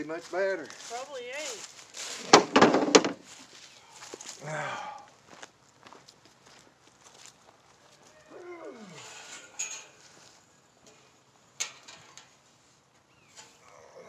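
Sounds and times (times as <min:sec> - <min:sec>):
metal panels clanking: 0:02.2 - 0:03.2, 0:09.1 - 0:10.1, 0:11.6 - 0:12.4.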